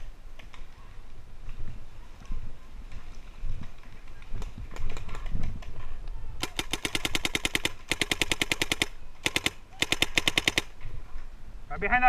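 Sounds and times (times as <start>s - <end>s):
paintball marker firing rapidly: 6.4s - 10.8s.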